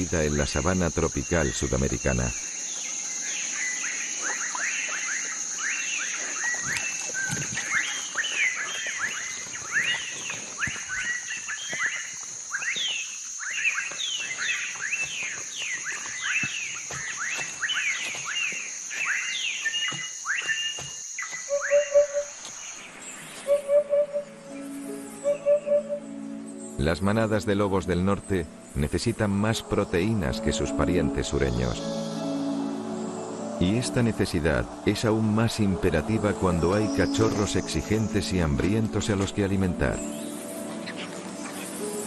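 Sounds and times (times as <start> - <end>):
downward-sweeping chirping calls: 0.0 - 42.0
high insect drone: 0.0 - 42.0
soft music notes: 23.4 - 42.0.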